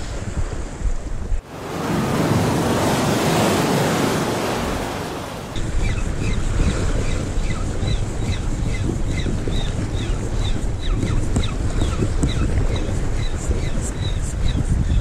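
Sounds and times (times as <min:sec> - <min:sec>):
sea wave washing in: 0:00.0 - 0:10.8
wind buffeting microphone: 0:00.0 - 0:15.0
bird chirping: 0:05.6 - 0:15.0.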